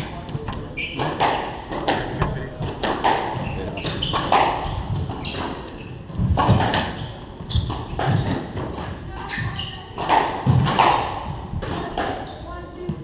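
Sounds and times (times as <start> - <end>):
squash ball hitting racquets and walls: 0.0 - 13.0
shoe squeaks on wooden floor: 0.1 - 1.3, 3.3 - 8.6, 9.2 - 10.0, 10.8 - 11.5.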